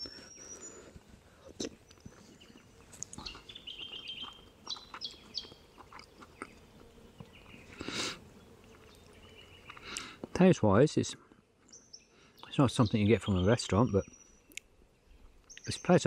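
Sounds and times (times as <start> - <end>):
small birds chirping: 0.0 - 16.0
chewing: 1.4 - 8.0, 8.6 - 10.3.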